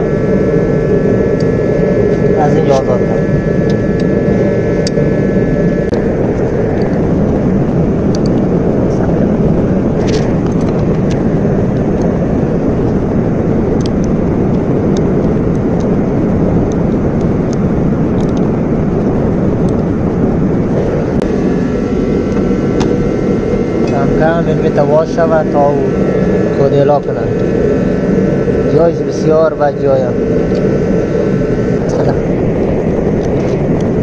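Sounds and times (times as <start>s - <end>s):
machinery rushing roar: 0.0s - 34.0s.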